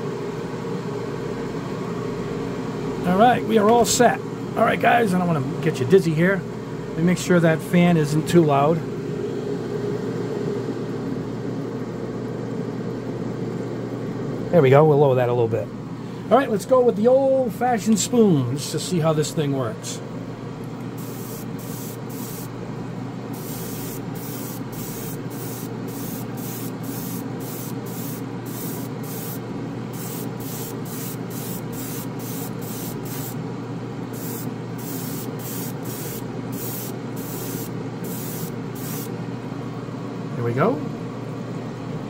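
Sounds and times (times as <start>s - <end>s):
airbrush spraying bursts: 21.0s - 22.5s, 23.4s - 33.4s, 34.1s - 39.1s.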